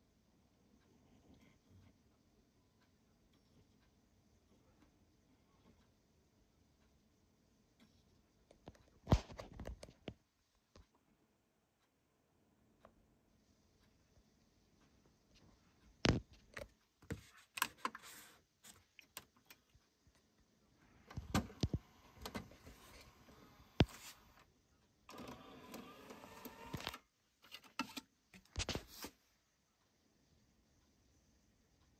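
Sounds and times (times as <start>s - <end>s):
disc handling clicks and knocks: 16.0s - 18.2s, 21.1s - 24.3s, 25.1s - 28.9s.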